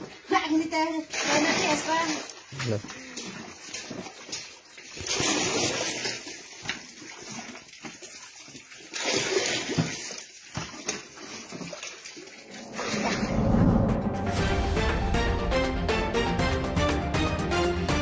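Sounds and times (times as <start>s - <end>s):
water splashing in buckets: 0.0s - 13.3s.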